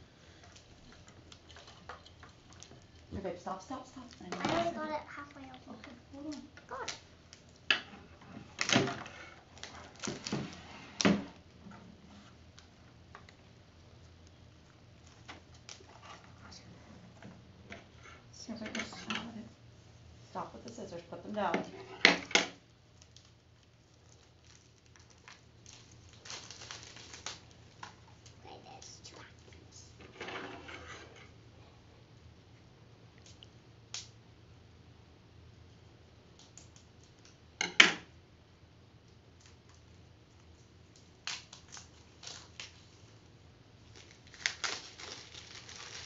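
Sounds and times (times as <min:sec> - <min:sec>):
plastic wrapper crinkling: 0:09.4 - 0:10.6, 0:22.9 - 0:28.9, 0:39.4 - 0:42.9, 0:43.8 - 0:46.0.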